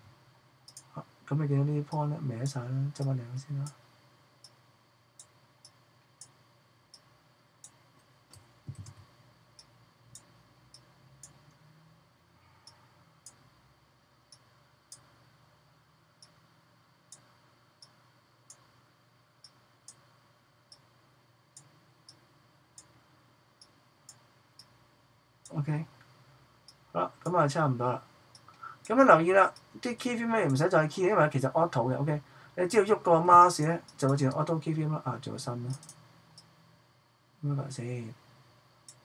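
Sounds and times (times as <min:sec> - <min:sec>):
computer mouse clicks: 0:00.7 - 0:00.9, 0:05.2 - 0:11.6, 0:35.7 - 0:36.5.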